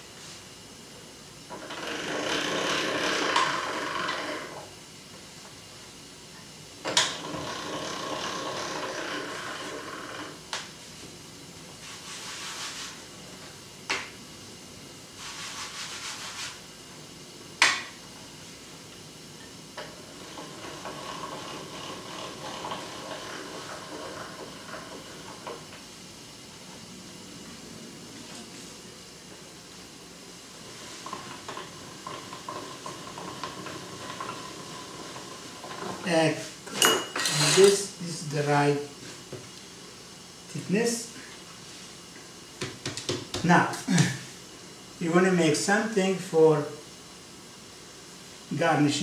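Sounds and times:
pasta machine rollers grinding: 1.4s - 4.8s, 6.8s - 10.6s, 19.4s - 25.9s, 30.4s - 38.3s.

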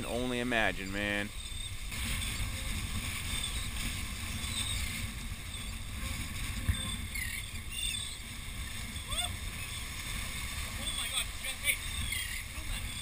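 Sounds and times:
surf washing against rocks: 0.0s - 13.0s
wind noise on microphone: 1.0s - 13.0s
faint bird calls: 6.7s - 8.3s, 10.8s - 13.0s.

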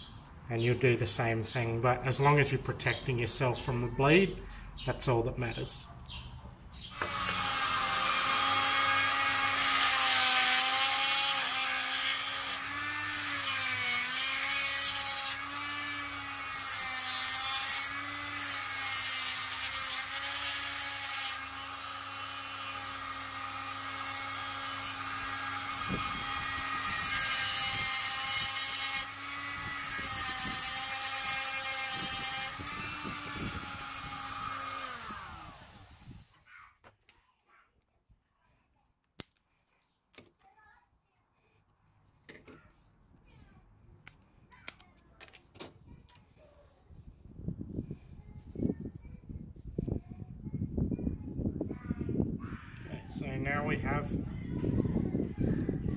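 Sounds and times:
rotary tool grinding: 6.9s - 36.3s.

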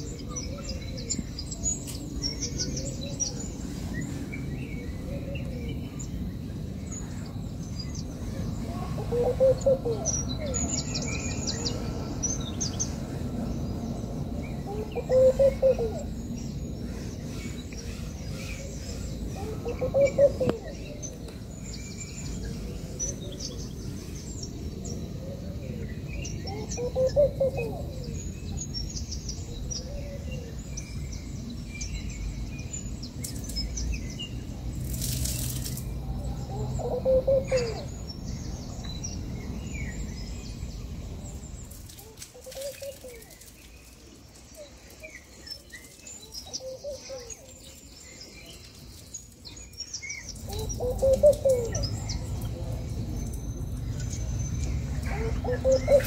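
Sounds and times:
small birds chirping: 0.0s - 56.0s
doves cooing: 8.6s - 10.7s, 14.6s - 16.2s, 18.0s - 21.5s, 25.1s - 28.4s, 36.1s - 38.0s, 50.4s - 52.9s, 54.8s - 56.0s.

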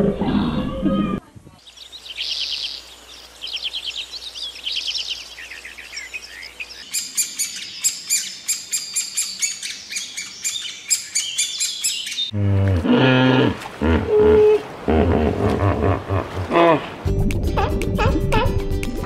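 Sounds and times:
small bird chirping: 1.6s - 12.3s.

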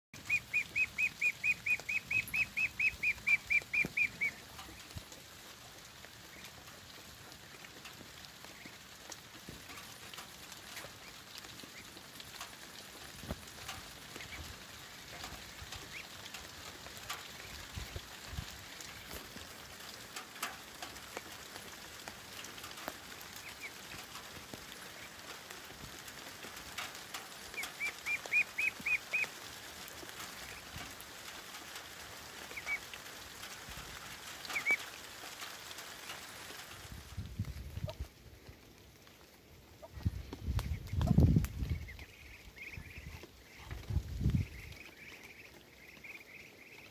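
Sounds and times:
ducklings peeping: 0.2s - 5.1s, 8.4s - 12.0s, 13.2s - 19.5s, 22.4s - 26.0s, 26.8s - 32.9s, 33.8s - 35.4s, 39.7s - 46.9s
drizzle pattering and dripping: 0.2s - 46.9s.

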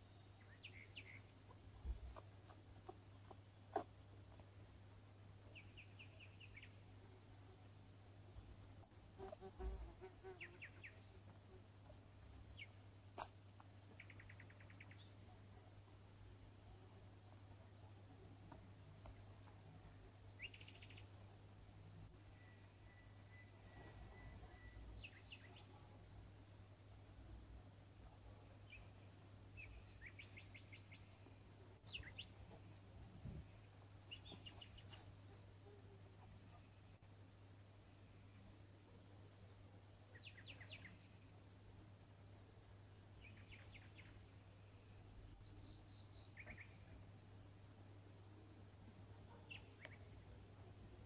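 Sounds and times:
low steady hum: 0.0s - 51.0s
faint high chirps: 13.9s - 26.3s.

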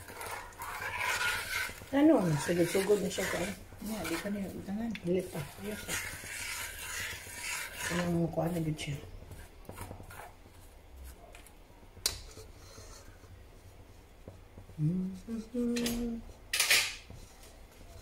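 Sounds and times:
metal spatula scraping wok: 0.0s - 10.4s, 12.3s - 13.3s
low voice murmuring: 14.8s - 16.3s.

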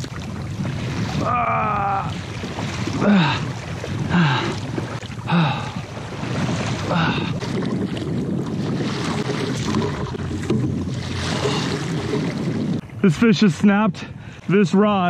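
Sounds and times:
water against a kayak: 0.0s - 15.0s
wind: 0.0s - 15.0s
man grunting with effort: 1.2s - 2.2s, 3.0s - 3.5s, 4.1s - 4.6s, 5.3s - 5.8s, 6.8s - 7.4s.

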